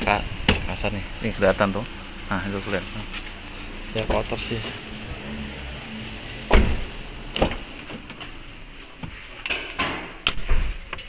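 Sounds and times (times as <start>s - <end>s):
car door and trim clunks: 3.1s - 11.0s
heavy thump: 6.4s - 8.1s.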